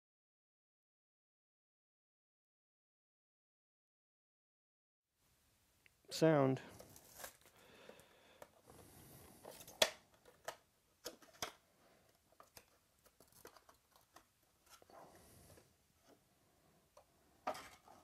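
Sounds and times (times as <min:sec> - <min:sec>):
plastic wrap crinkling: 0:06.7 - 0:08.0
cardboard lid clicks and rustles: 0:09.4 - 0:11.6.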